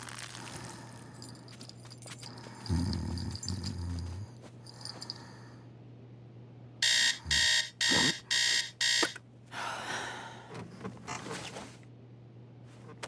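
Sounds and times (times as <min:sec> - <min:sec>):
digital alarm clock beeping: 0:06.8 - 0:09.2.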